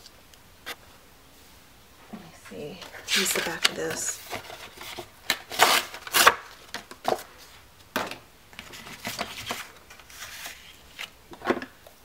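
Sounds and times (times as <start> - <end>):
paper rustling: 2.8 - 7.6, 8.6 - 11.1.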